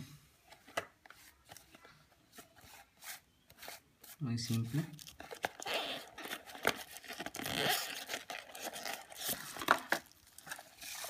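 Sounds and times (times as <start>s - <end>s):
plastic bag crinkling: 4.4s - 11.0s.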